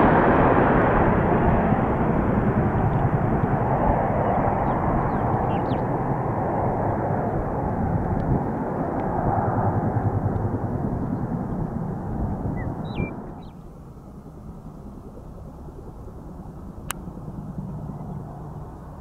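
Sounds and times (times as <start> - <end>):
airplane engines rumbling: 0.0 - 19.0
bird chirping: 4.6 - 5.9, 12.5 - 13.7.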